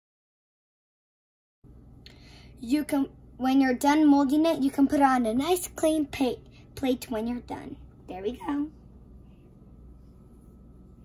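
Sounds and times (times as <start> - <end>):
faint whine: 1.7 - 11.0
low hum: 4.8 - 11.0.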